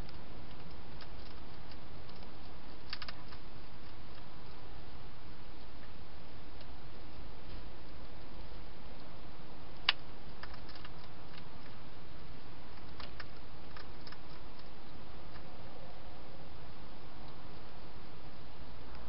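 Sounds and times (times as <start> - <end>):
hedgehog clicking at dish: 0.5 - 4.3, 9.8 - 11.7, 12.8 - 14.7.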